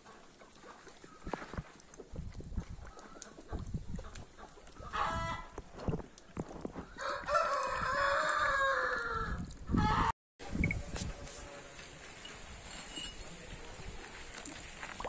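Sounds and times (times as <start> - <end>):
rooster crowing: 7.0 - 9.4.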